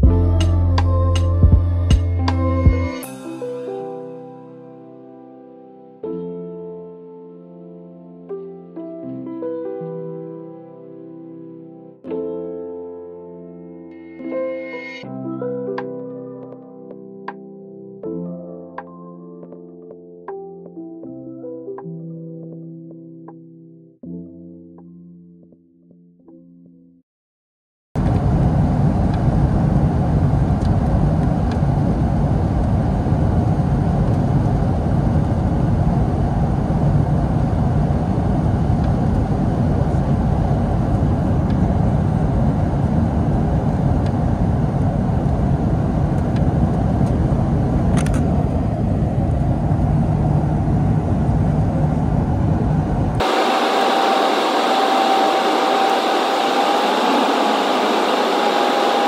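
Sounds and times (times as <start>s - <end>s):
aircraft cabin rumble: 28.0s - 59.0s
hiss with high whine: 53.2s - 59.0s.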